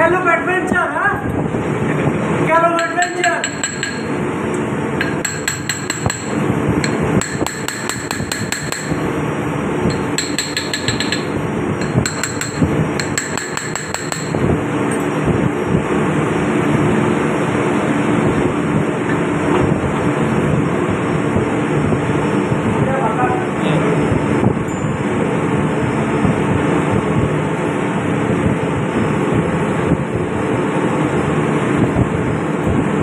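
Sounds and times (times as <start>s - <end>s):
engine-room machinery hum: 1.3s - 33.0s
metallic hammer taps on steel: 2.8s - 4.2s, 5.0s - 9.1s, 9.9s - 14.5s.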